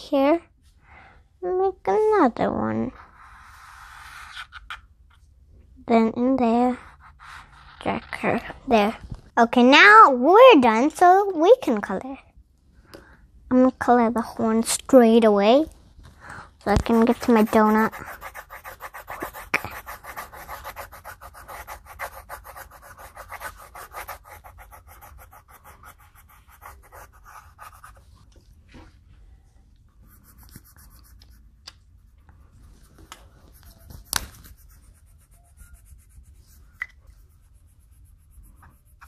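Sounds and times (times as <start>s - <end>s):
pencil scribbling on paper: 6.6s - 8.1s, 16.8s - 28.1s, 30.1s - 31.4s, 33.0s - 39.0s.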